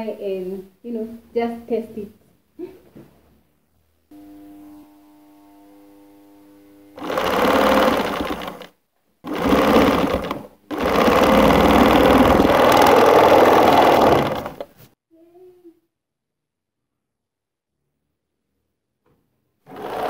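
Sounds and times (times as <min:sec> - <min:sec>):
sewing machine stitching: 0:07.0 - 0:14.8, 0:19.7 - 0:20.0.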